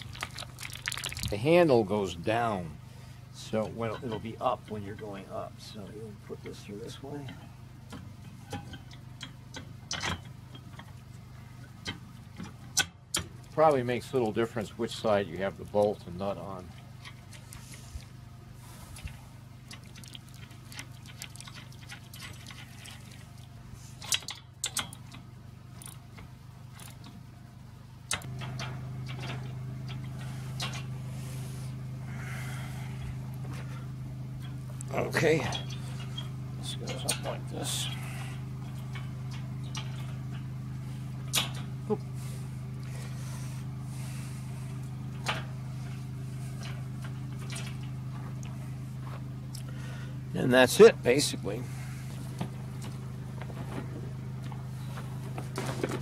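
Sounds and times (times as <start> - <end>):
low hum: 0.0 - 56.0.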